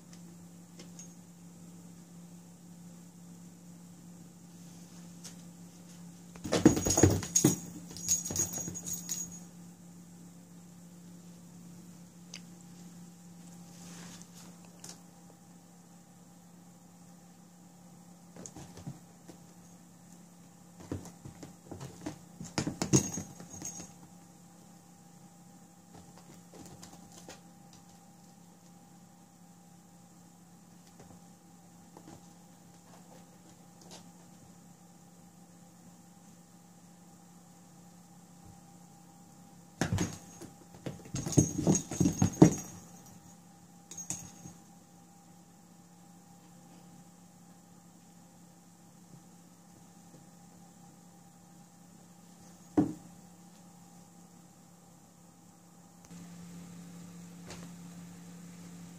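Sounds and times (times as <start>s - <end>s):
knocks and thumps on wooden floor: 6.4s - 7.7s, 52.8s - 53.0s
faint high jingle: 6.7s - 9.6s, 22.9s - 24.0s, 41.2s - 44.6s.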